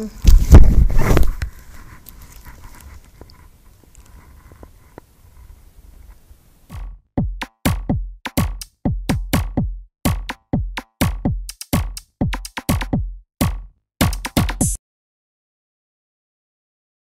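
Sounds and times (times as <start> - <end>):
drum-machine beat: 6.7 - 14.8.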